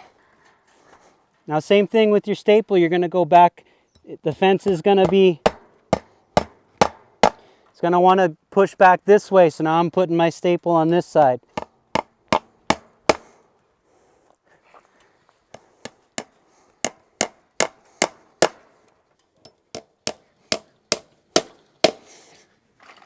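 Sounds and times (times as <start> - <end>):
hammer striking staples into wood: 4.6 - 7.4, 11.5 - 13.3, 15.8 - 18.7, 19.7 - 22.1.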